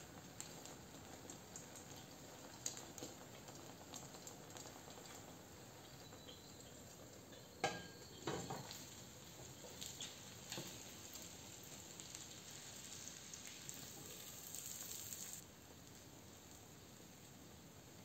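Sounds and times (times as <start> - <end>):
food sizzling in pan: 0.0 - 15.4
kitchenware clatter: 7.3 - 8.8
kitchenware knocking on pan: 7.6 - 8.6.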